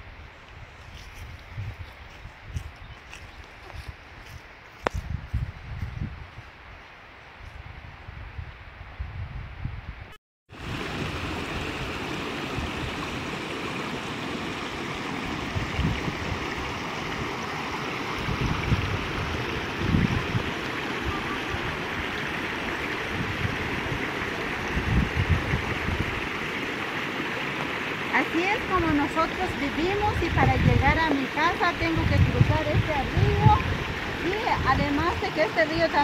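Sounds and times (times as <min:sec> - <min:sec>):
stream flowing: 0:10.5 - 0:36.0.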